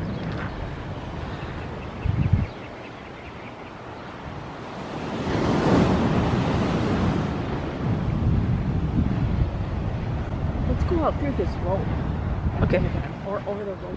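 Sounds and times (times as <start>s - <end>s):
ocean wave breaking: 3.7s - 13.9s.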